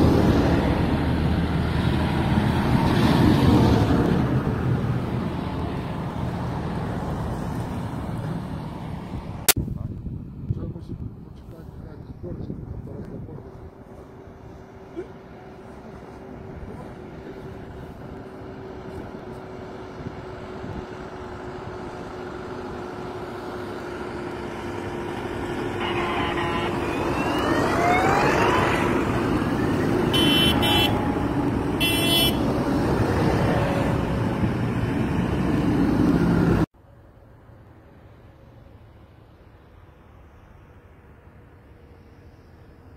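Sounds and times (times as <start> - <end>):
tractor engines driving past: 0.0 - 42.9
horn blasts: 25.8 - 27.1, 30.1 - 31.2, 31.8 - 32.5.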